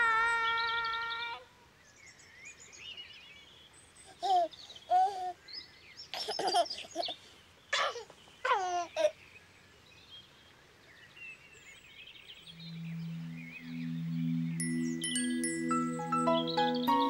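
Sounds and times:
birds chirping: 0:00.0 - 0:17.0
baby cooing and giggling: 0:04.1 - 0:05.4, 0:07.8 - 0:09.2.

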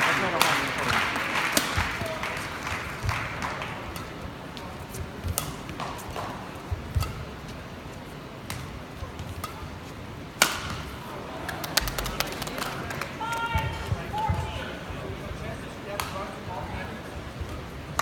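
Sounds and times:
rackets hitting shuttlecock: 0:00.0 - 0:07.7, 0:08.3 - 0:12.4, 0:15.9 - 0:16.4, 0:17.0 - 0:18.0.

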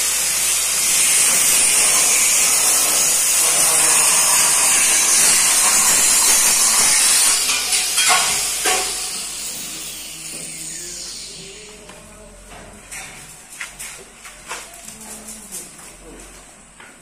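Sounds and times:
loud steady hiss: 0:00.0 - 0:12.4.

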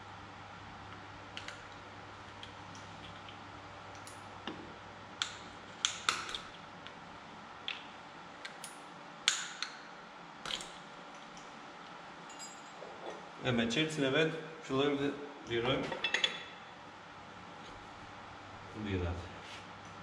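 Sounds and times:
caps clicking on concrete floor: 0:07.6 - 0:09.8.

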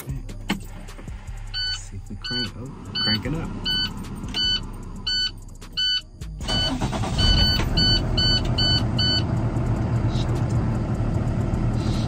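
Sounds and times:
truck engine idling: 0:00.3 - 0:12.0
dashboard warning chime dinging: 0:01.5 - 0:09.4.

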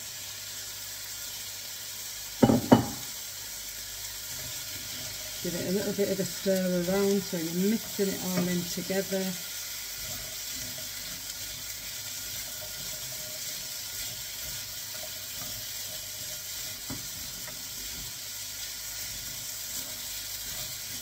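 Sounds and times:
vegetables sizzling in a pan: 0:00.0 - 0:21.0
spatula knock: 0:02.4 - 0:03.1.

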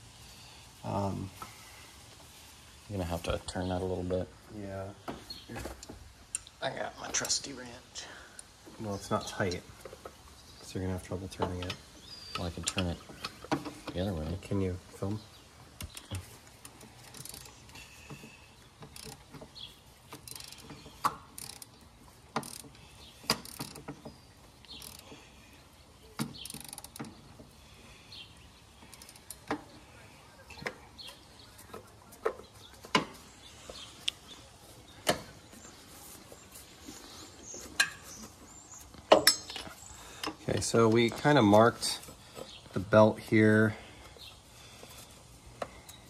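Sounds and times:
metal clicks and clanks: 0:11.3 - 0:14.2, 0:15.8 - 0:25.2, 0:39.0 - 0:42.0.

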